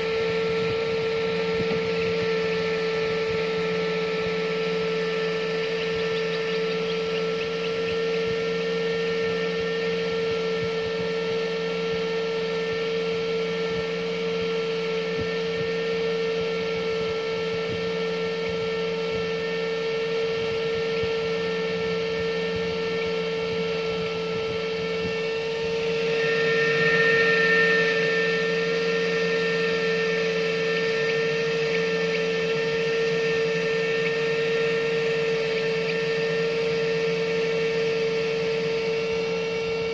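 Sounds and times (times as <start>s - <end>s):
electrical hum: 0.0s - 39.9s
faint high tones: 21.2s - 38.5s.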